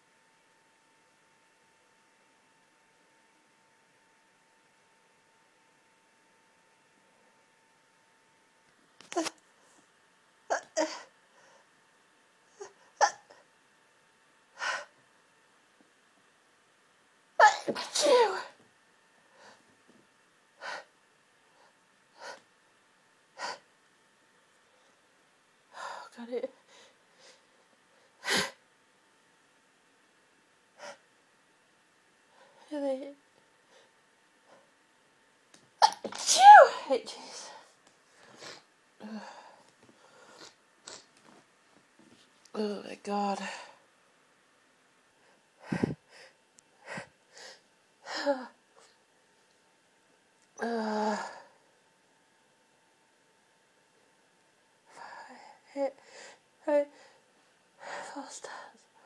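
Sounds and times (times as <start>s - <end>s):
woman stifled sneezes: 17.4s - 18.6s, 35.8s - 37.5s.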